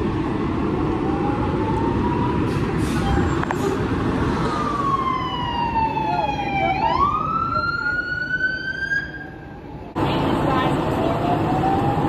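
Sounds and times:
emergency siren wailing: 0.0s - 9.6s, 10.8s - 12.0s
diesel engines idling: 9.4s - 12.0s.

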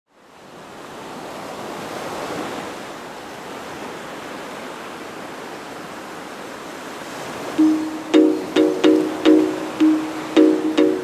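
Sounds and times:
ocean surf rushing: 7.0s - 11.0s.

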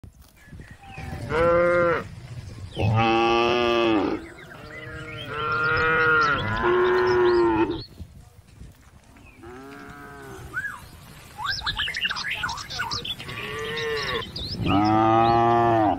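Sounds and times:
cattle mooing: 2.8s - 7.8s, 13.2s - 15.9s.

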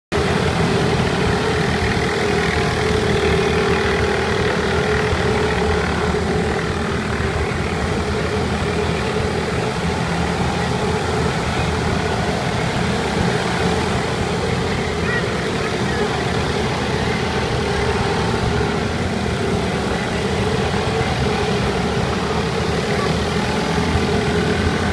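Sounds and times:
small boat motors droning: 0.2s - 24.9s.

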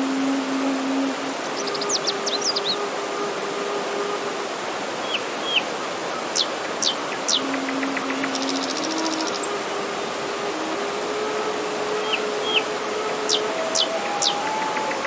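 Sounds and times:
bamboo flute low notes: 0.0s - 4.9s, 7.0s - 15.0s
stream rushing over rocks: 0.1s - 15.0s
small birds chirping: 1.6s - 2.8s, 5.1s - 9.5s, 12.5s - 15.0s.

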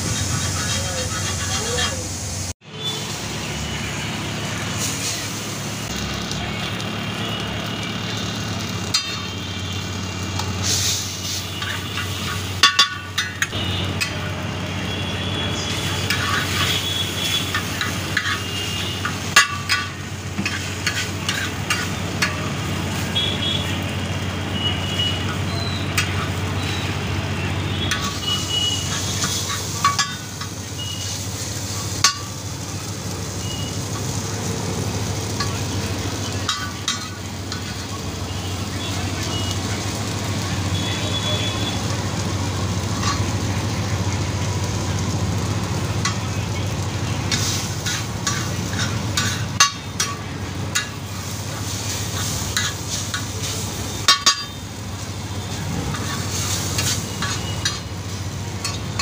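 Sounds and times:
metal spatula scraping pan: 0.0s - 2.2s, 10.6s - 14.2s, 15.8s - 22.5s, 27.9s - 31.2s, 47.3s - 51.0s, 51.9s - 54.6s, 55.8s - 57.9s
food frying on griddle: 0.0s - 59.0s.

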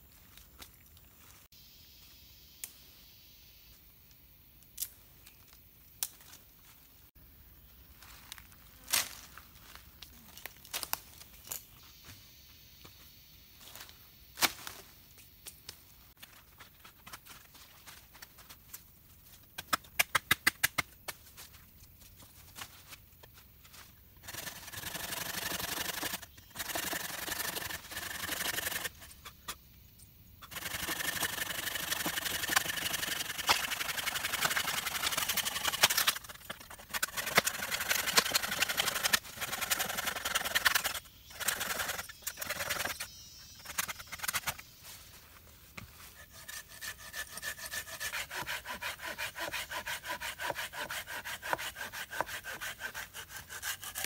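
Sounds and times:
hand saw cutting log: 24.2s - 29.0s, 30.5s - 43.0s, 46.2s - 54.0s.

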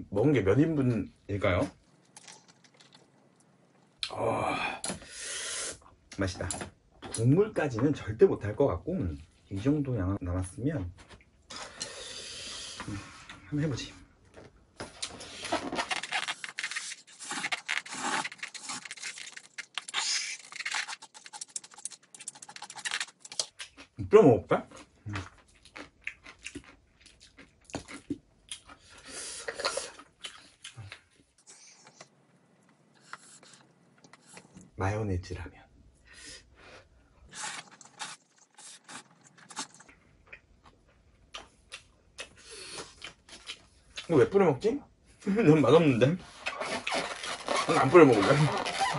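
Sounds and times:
chopsticks clicking and scraping: 15.9s - 23.8s
person slurping noodles: 17.1s - 19.2s.

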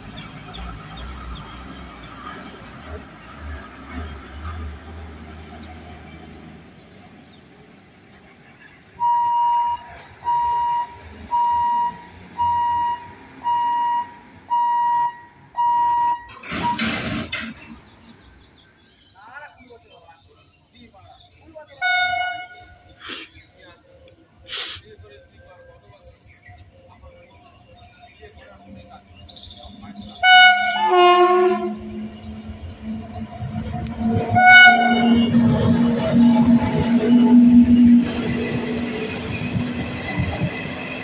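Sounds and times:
truck engine rumbling: 0.0s - 19.4s, 25.8s - 41.0s
level-crossing warning beeps: 8.9s - 17.8s.

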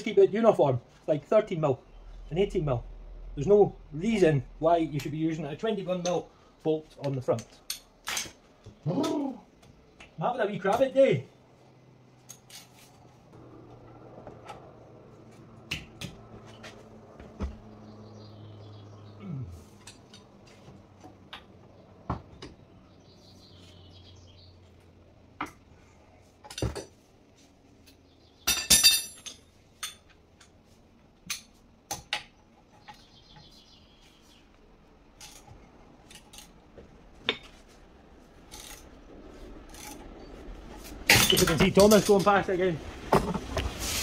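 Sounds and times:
hand tools clanking on metal: 7.0s - 8.4s, 28.5s - 30.1s, 40.9s - 42.4s.

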